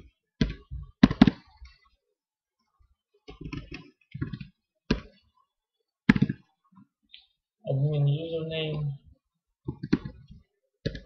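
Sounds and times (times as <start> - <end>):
keyboard typing: 9.7 - 11.0.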